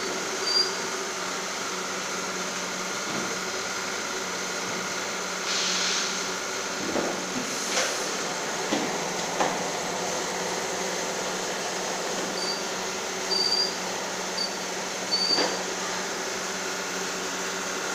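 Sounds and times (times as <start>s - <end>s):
short high squeaks: 0.4s - 0.8s, 12.4s - 12.7s, 13.3s - 13.8s, 14.4s - 15.6s.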